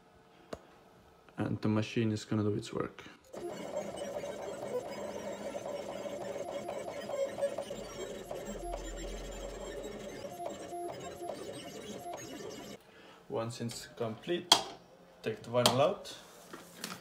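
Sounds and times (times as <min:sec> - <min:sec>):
vinyl cutter motors whirring: 0:03.3 - 0:12.8.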